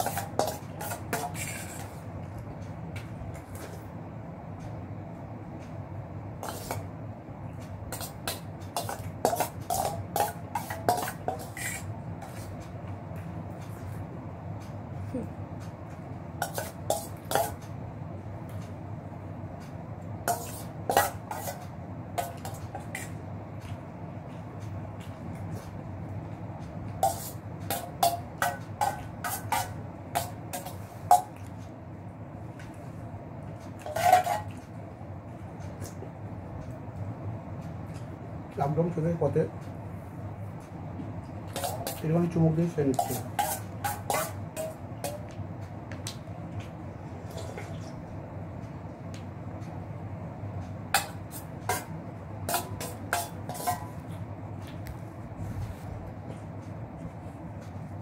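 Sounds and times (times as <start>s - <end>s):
steady low hum: 0.0s - 58.0s
metal spoon clinking in steel bowl: 7.9s - 11.8s, 42.9s - 45.2s.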